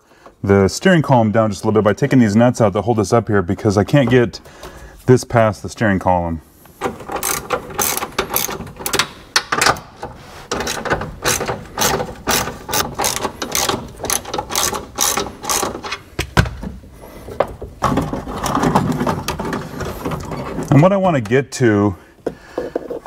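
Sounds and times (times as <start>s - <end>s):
ratchet wrench clicking: 7.2s - 9.1s, 10.6s - 15.9s.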